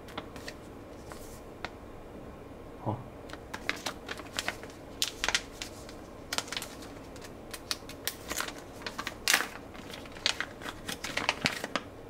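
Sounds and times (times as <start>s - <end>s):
plastic pouch crinkling: 3.3s - 11.9s.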